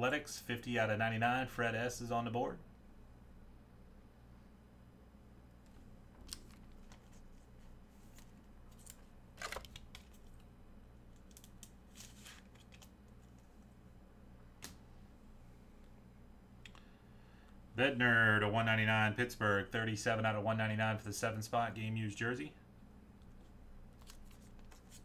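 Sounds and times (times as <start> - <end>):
steady low hum: 0.0 - 25.0
trading cards rustling and clicking: 5.7 - 10.5, 11.1 - 13.5, 23.2 - 25.0.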